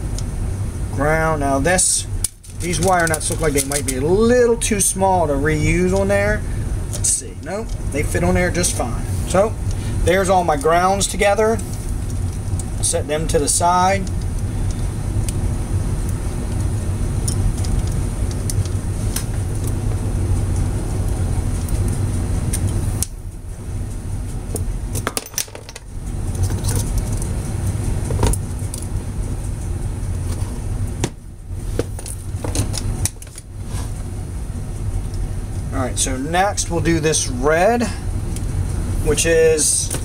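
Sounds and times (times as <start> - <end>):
low background rumble: 0.0 - 40.0
clicks and rattles of wires: 2.2 - 4.3, 16.0 - 19.8, 24.5 - 27.3, 31.8 - 33.5.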